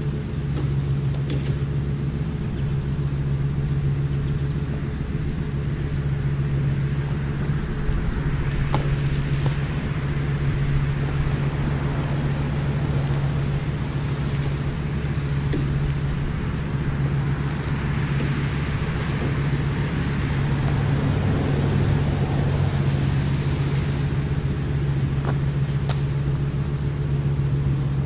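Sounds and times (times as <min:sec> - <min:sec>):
vehicle engine idling: 0:00.0 - 0:28.0
rope swishing through branches: 0:08.4 - 0:10.1.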